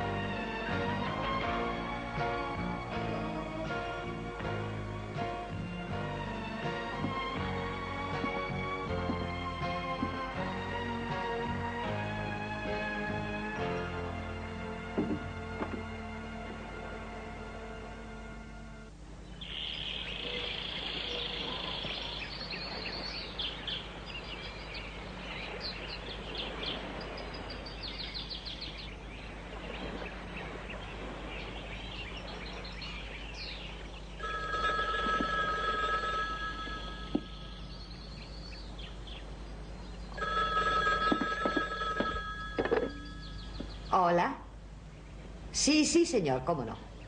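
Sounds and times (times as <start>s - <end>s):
birds chirping: 12.6s - 47.0s
telephone ringing: 34.2s - 37.8s, 40.2s - 43.4s.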